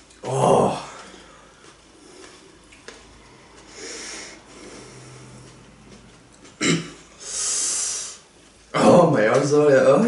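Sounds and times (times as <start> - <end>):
person breathing out hissing: 3.7 - 5.4, 7.2 - 8.3.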